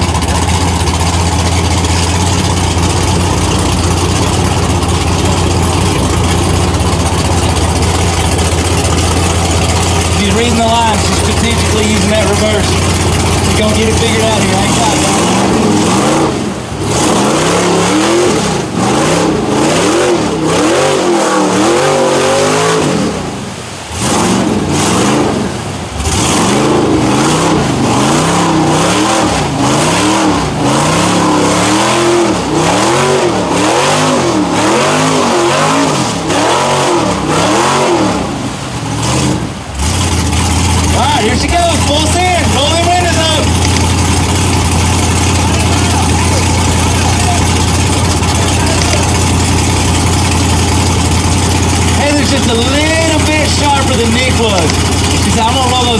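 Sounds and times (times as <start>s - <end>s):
tyres spinning in mud: 0.0s - 20.8s, 39.1s - 55.9s
truck engine revving hard: 0.0s - 55.9s.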